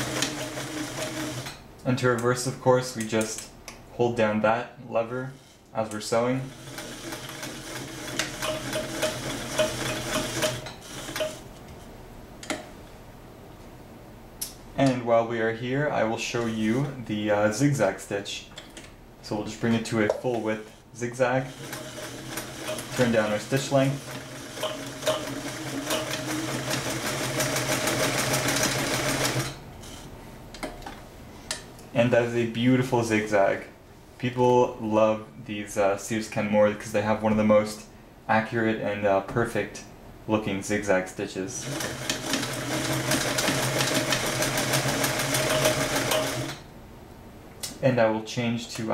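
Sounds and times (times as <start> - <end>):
sewing machine stitching: 0.0 - 1.6, 6.5 - 11.4, 21.3 - 29.6, 41.6 - 46.6.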